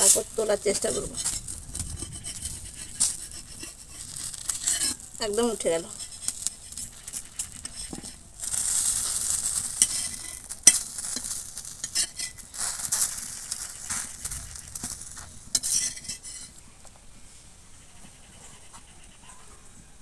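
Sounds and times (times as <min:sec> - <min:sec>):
metal spatula scraping a griddle: 0:00.0 - 0:16.6
light sizzle: 0:00.0 - 0:17.8.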